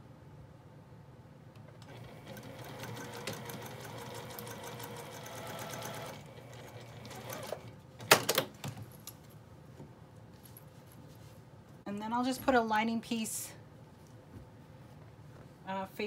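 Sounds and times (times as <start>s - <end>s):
sewing machine stitching: 1.8s - 7.7s.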